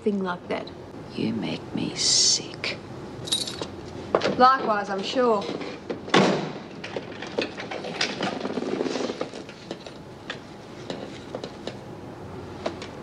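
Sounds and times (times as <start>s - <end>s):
cell door slamming: 6.1s - 6.6s.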